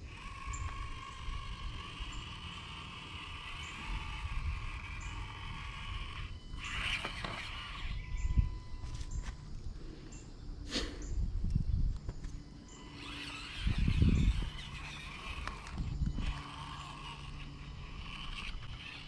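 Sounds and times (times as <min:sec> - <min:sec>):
small electric motor whining: 0:00.0 - 0:10.3, 0:11.0 - 0:19.0.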